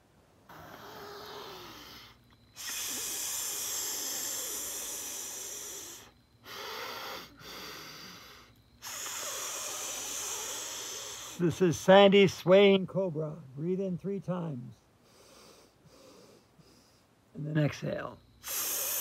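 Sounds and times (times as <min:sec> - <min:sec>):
woman breathing: 0:00.5 - 0:11.4, 0:15.0 - 0:17.2
woman hissing through teeth: 0:02.6 - 0:11.4, 0:18.4 - 0:19.0.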